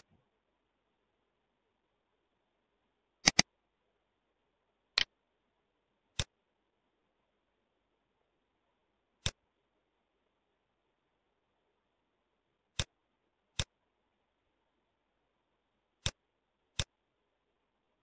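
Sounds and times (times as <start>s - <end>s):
computer mouse clicks: 3.2s - 3.5s, 16.0s - 16.2s.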